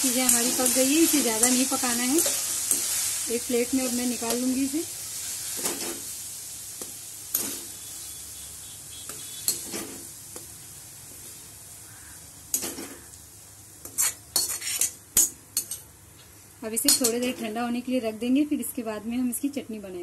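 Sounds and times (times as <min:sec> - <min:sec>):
metal spoon scraping a pan: 0:00.0 - 0:03.2, 0:09.0 - 0:10.1, 0:13.8 - 0:15.8
food sizzling in a pan: 0:00.0 - 0:15.9.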